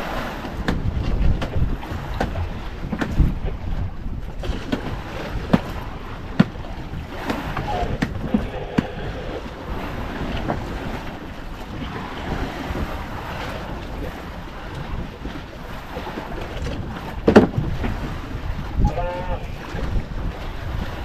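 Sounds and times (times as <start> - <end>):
water washing around boat: 0.0 - 21.0
wind buffeting microphone: 0.0 - 21.0
sharp knocks against boat: 0.4 - 8.9, 16.0 - 18.2.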